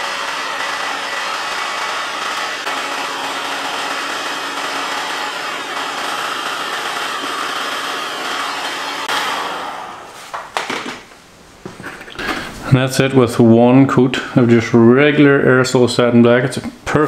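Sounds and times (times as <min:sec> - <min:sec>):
heat gun blowing air: 0:00.0 - 0:10.4.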